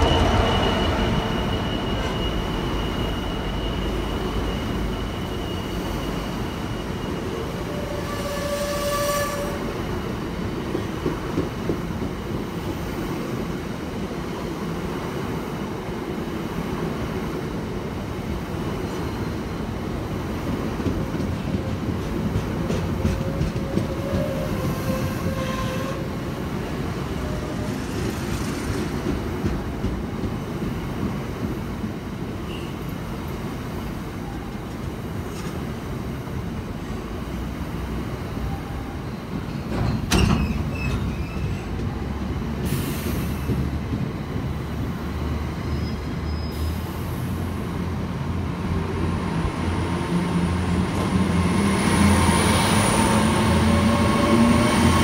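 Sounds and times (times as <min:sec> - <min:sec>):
train wheels rumbling on rail: 0:00.0 - 0:55.0
faint wheel squeal: 0:45.6 - 0:46.8.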